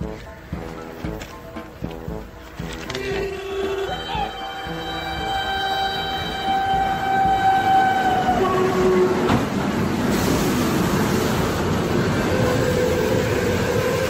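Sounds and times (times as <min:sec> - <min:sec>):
train horn blaring: 0:03.2 - 0:09.3, 0:11.0 - 0:14.0.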